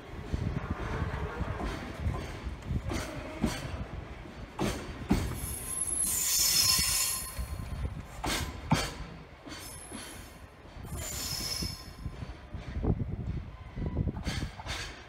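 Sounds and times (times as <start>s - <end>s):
train rumble: 0.0s - 15.0s
train wheels clacking over joints: 1.1s - 15.0s
high-pitched wheel squeal: 5.5s - 7.6s.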